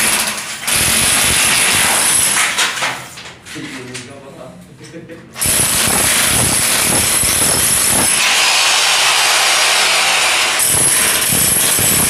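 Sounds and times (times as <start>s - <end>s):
demolition hammer chipping concrete: 0.0s - 2.9s, 5.4s - 12.0s.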